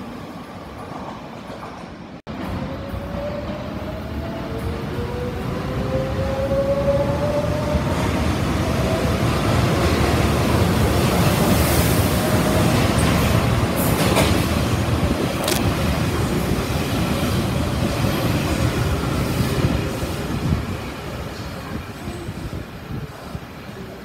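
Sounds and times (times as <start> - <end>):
train rumbling through station: 0.0 - 24.0.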